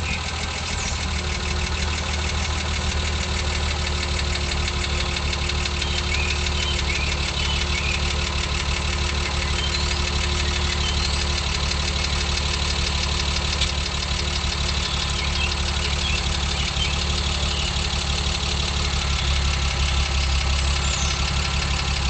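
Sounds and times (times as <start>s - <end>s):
car engine idling: 0.0s - 22.0s.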